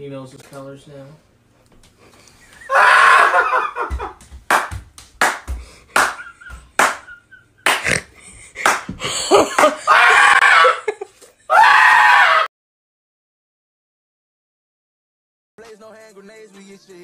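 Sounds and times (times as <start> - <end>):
excited voices: 2.6 - 3.9, 9.4 - 12.5
loud screams of excitement: 2.6 - 3.9, 9.6 - 12.5.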